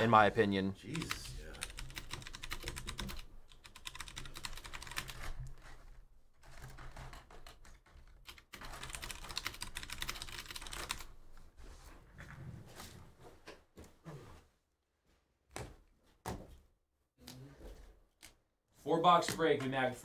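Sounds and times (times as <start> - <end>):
rapid typing on keyboard: 0.9 - 5.8, 6.4 - 11.2.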